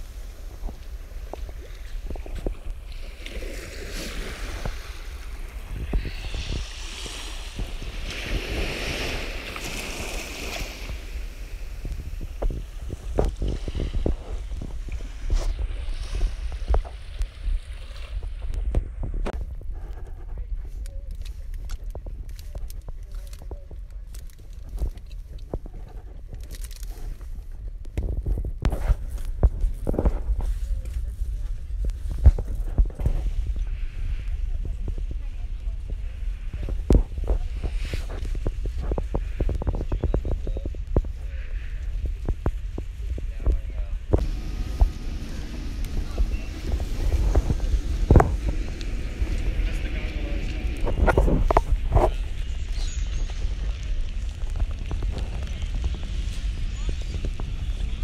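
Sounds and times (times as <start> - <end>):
small waves washing on sand: 0.0 - 18.4, 44.2 - 58.0
wind rumbling on microphone: 0.0 - 58.0
crackling handling noise: 19.3 - 31.1
footsteps on wet sand: 44.2 - 58.0.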